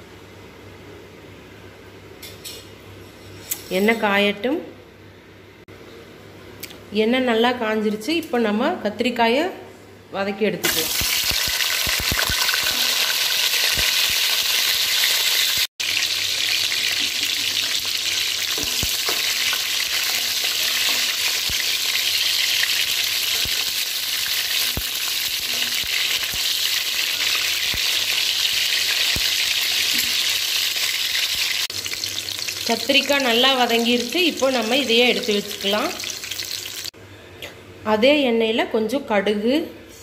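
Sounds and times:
eggplants sizzling in oil: 10.6 - 37.0.

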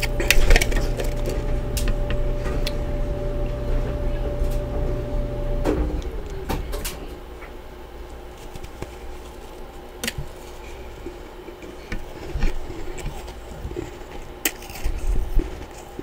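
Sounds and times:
frost crunching: 0.0 - 3.7, 7.1 - 16.0.

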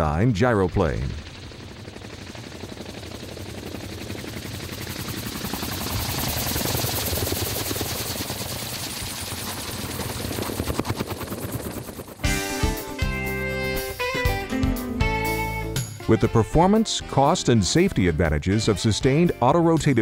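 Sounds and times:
rotor blades chopping: 0.2 - 12.2.

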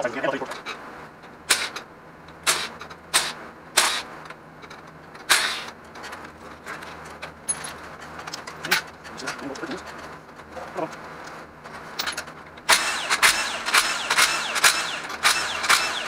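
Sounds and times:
impact wrench bursts: 1.5 - 1.8, 2.4 - 4.1, 5.3 - 5.7, 12.7 - 16.0.

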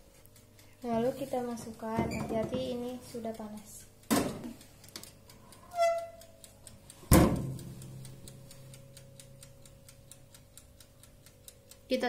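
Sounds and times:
oven low hum: 0.0 - 12.0
timer ticking: 0.0 - 12.0
oven door clunk: 7.1 - 7.6.

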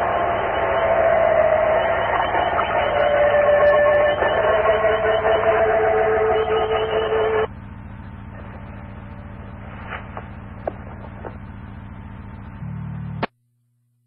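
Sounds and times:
radio static and held tones: 0.0 - 7.5
steady hum: 0.0 - 14.0.

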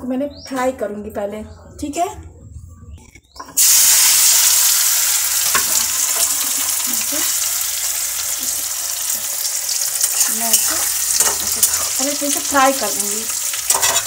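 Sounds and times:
metal spatula scraping a pan: 3.3 - 7.6, 9.2 - 14.0
potatoes sizzling in hot oil: 3.6 - 14.0.

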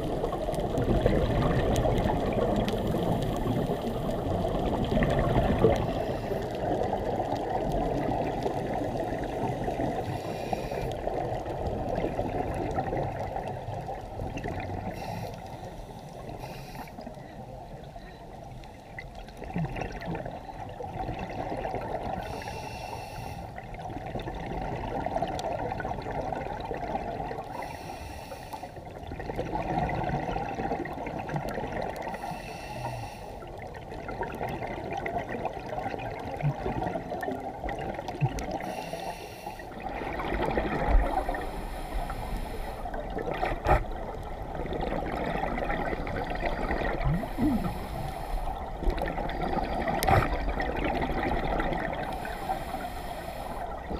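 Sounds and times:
muffled underwater noise: 0.0 - 24.7, 25.3 - 53.9
regulator exhaled bubbles: 37.7 - 53.9.

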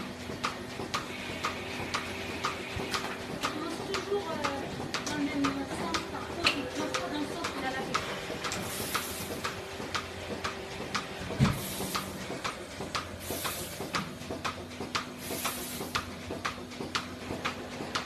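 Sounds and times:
milking pulsator ticking: 0.0 - 18.0
steady motor hum: 0.0 - 18.0
short air hisses: 11.5 - 12.2, 13.2 - 13.9, 15.2 - 16.0.

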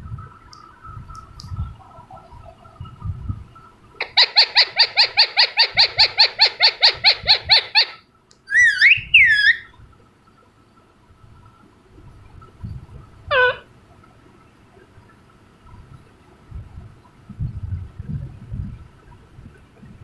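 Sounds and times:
parakeet giving harsh calls: 4.0 - 9.7, 13.3 - 13.7.

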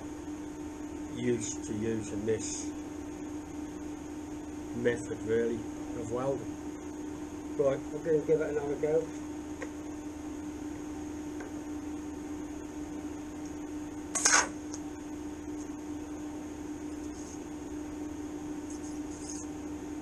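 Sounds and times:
steady background hum: 0.0 - 20.0
welding arc crackle: 14.1 - 14.8.

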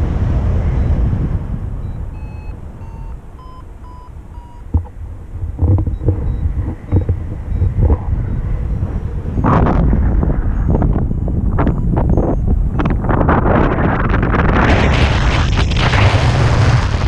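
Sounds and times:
wind on microphone: 0.0 - 17.0
variometer beeping: 0.8 - 1.0, 1.8 - 13.3.

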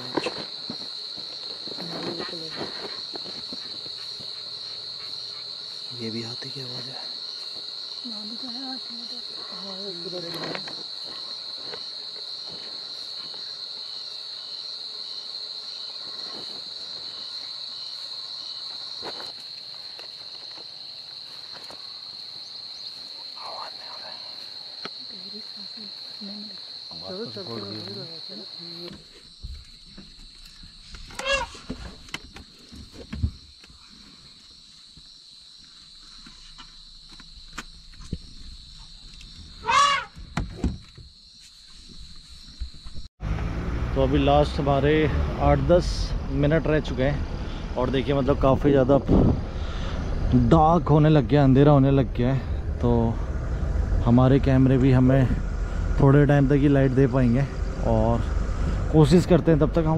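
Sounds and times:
high-pitched insect drone: 0.0 - 43.1
insect chirping in pulses: 0.0 - 59.9
elephant trumpeting: 31.1 - 31.7, 39.6 - 40.2.

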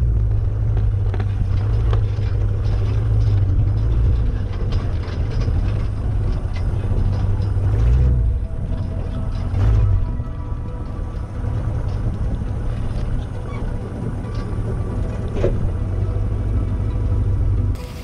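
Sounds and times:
truck engine running low: 0.0 - 18.0.

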